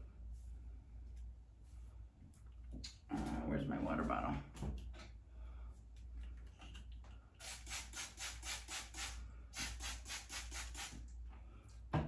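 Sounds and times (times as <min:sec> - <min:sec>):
spray bottle spraying: 0:07.4 - 0:11.1.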